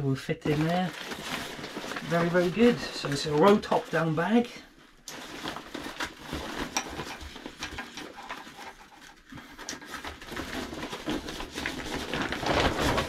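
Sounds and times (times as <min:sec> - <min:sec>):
backpack fabric rustling: 0:00.5 - 0:04.3.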